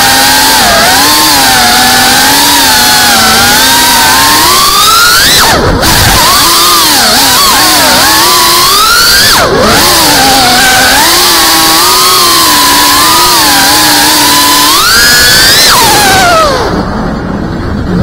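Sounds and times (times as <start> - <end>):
drone motors whining: 0.0 - 18.0
rushing air: 8.0 - 18.0.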